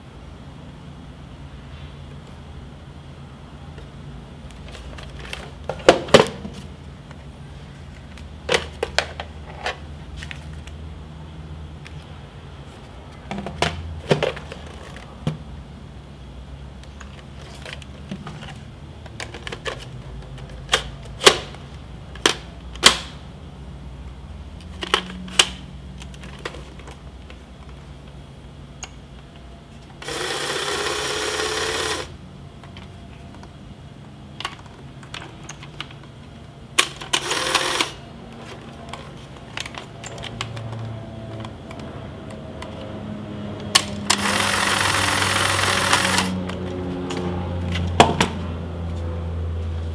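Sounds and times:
camera motor whirring: 30.0 - 32.1, 37.2 - 38.0, 44.1 - 46.4.

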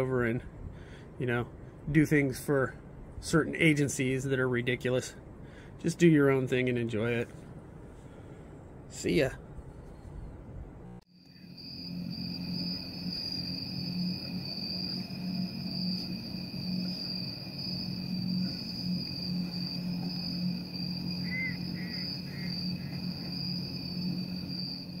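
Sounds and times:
steady low hum: 0.0 - 25.0
insects trilling: 11.1 - 25.0.

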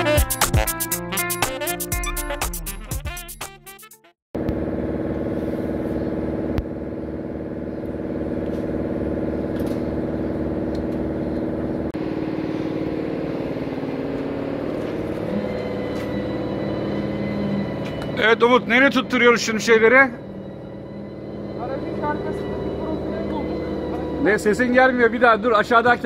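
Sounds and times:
engine idling: 4.4 - 26.0.

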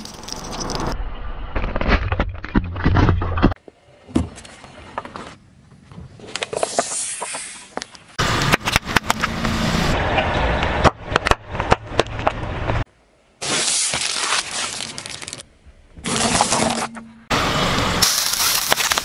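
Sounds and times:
objects crunching under tyre: 0.0 - 3.7, 17.7 - 19.0.

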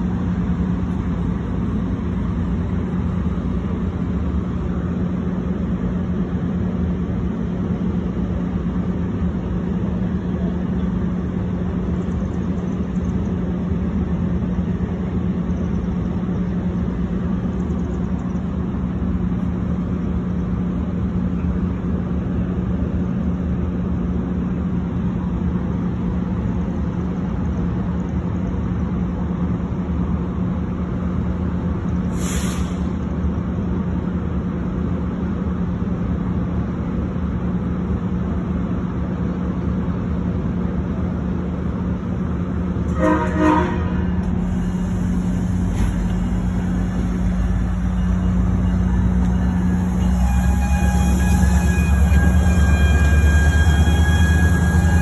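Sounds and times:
low engine hum: 0.0 - 55.0
train rolling past: 0.0 - 55.0
brief hiss: 32.1 - 33.0, 44.2 - 47.1
train horn blast: 42.9 - 55.0.

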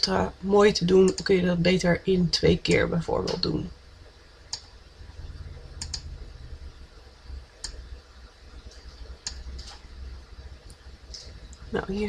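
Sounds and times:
low steady hum: 0.0 - 12.0
computer mouse clicks: 5.8 - 6.1, 7.6 - 7.8, 9.2 - 9.8.

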